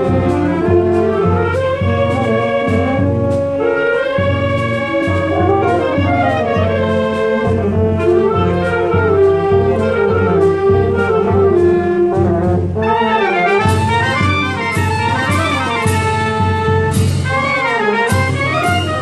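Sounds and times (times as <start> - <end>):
wind band playing: 0.0 - 19.0.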